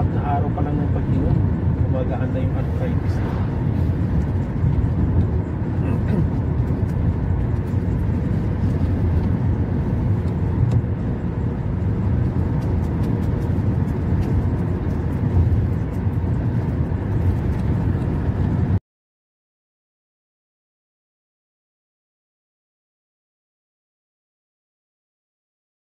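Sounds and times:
road and engine rumble inside car: 0.0 - 18.8.

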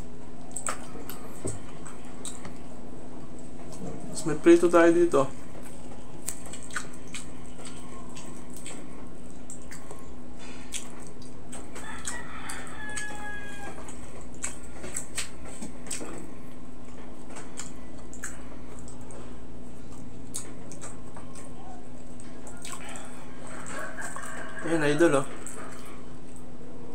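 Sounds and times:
steady low hum: 0.0 - 26.9
rooster crowing: 11.7 - 14.0, 22.4 - 26.1.

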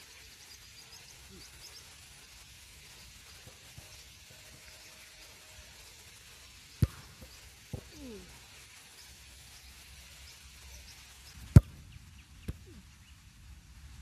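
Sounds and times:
football kick thuds: 6.8 - 8.3, 11.4 - 12.8.

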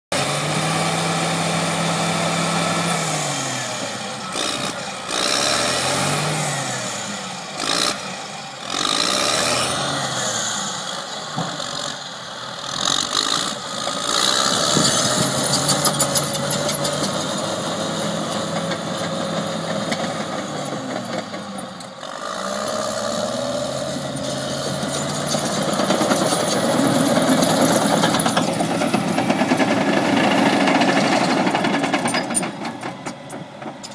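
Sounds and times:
diesel engine revving: 0.1 - 33.6
steel tracks clattering: 25.4 - 33.9.

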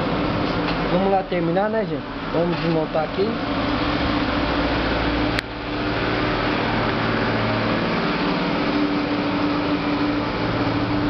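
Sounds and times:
electric fan hum and whoosh: 0.0 - 11.0.

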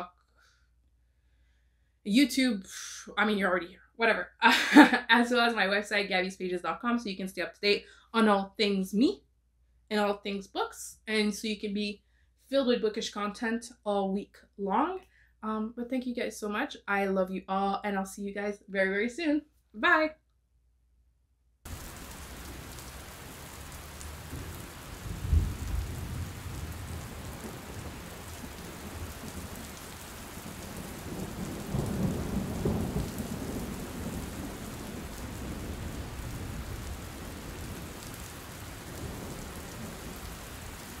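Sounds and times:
low rolls of thunder: 21.7 - 41.0
steady rain: 21.7 - 41.0.

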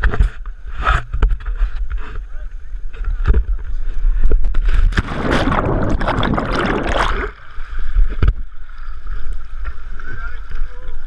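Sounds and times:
river water rushing and splashing: 4.9 - 9.1.

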